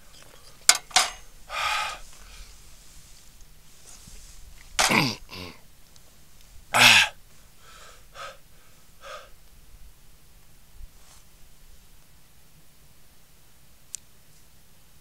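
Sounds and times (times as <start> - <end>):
short exhalations: 1.5 - 2.8, 6.7 - 9.4
person coughing: 4.8 - 5.6, 6.8 - 7.2.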